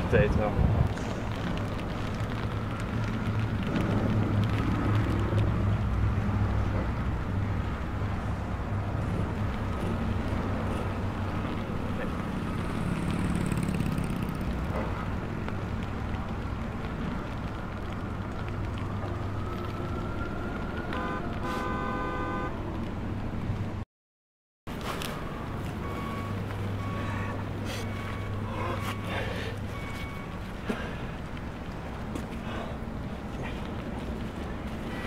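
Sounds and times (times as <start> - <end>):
city street traffic: 0.0 - 23.8, 24.7 - 35.0
horn toot: 20.9 - 22.5.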